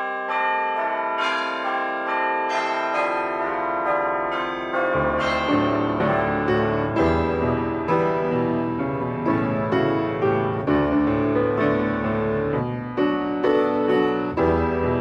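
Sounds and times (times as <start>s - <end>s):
church bells ringing a peal: 0.0s - 15.0s
deeper musical notes: 4.9s - 13.2s.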